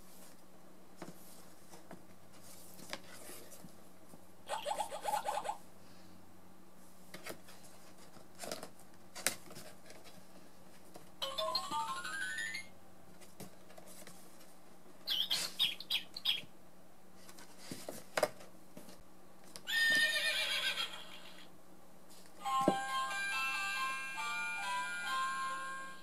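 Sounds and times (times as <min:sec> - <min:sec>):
tinny music from small speaker: 0:11.2 - 0:12.7, 0:22.4 - 0:26.0
electronic bird tweets: 0:15.1 - 0:16.5.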